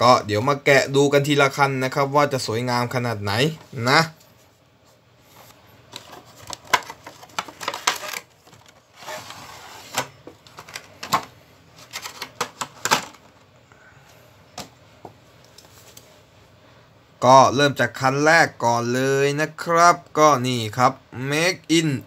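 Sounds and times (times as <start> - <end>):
tray sliding rustle: 5.3 - 11.2
plastic clicks and crackles: 6.0 - 8.8.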